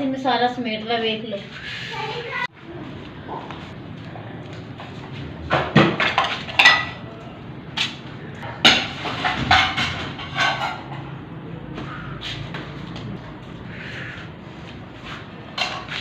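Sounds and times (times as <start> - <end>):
dishes and pans clattering: 5.5 - 7.1, 8.5 - 11.3, 15.5 - 16.0.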